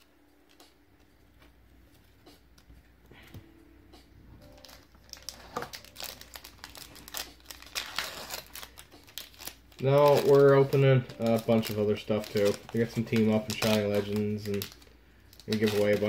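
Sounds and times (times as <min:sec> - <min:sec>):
foil wrapper crinkling: 0:04.5 - 0:16.0.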